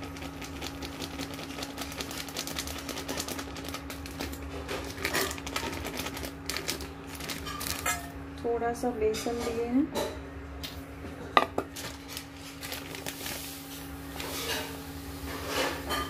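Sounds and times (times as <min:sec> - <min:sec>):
plastic packet crinkling: 0:00.0 - 0:08.0, 0:11.7 - 0:14.6.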